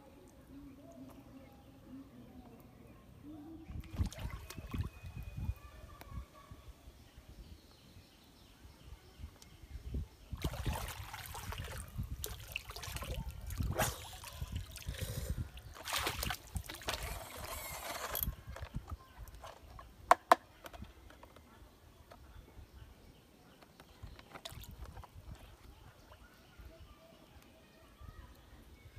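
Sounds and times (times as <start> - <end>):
water splashing and sloshing: 3.7 - 5.2, 10.3 - 17.5, 24.2 - 25.3
water trickling: 10.3 - 17.1.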